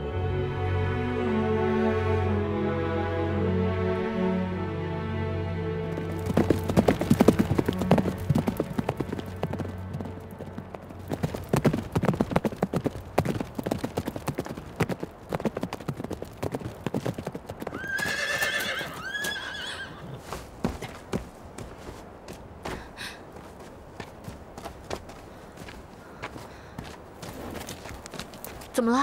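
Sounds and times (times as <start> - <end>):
horse hooves on stony track: 5.9 - 29.0
horse whinnying: 17.7 - 20.2.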